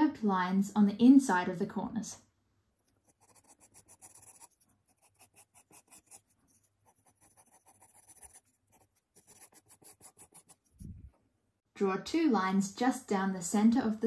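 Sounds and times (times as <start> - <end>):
pencil scratching on paper: 2.8 - 11.0.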